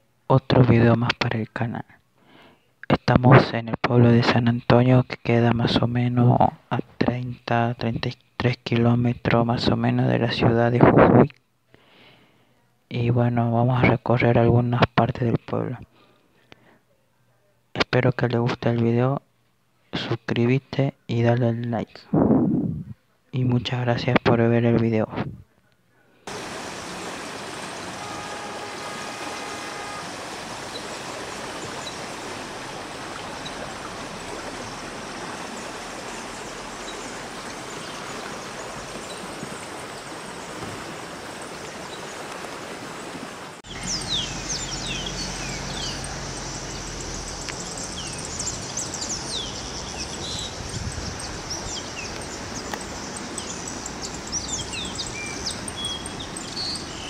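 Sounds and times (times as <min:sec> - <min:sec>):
small birds chirping: 0:26.3 - 0:42.4, 0:43.6 - 0:57.0
stream rushing over stones: 0:26.3 - 0:57.0.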